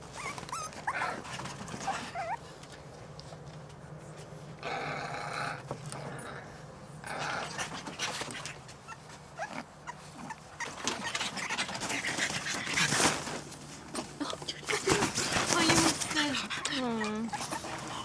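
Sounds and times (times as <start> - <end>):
puppies whining: 0.0 - 2.5, 7.4 - 13.1, 15.7 - 18.0.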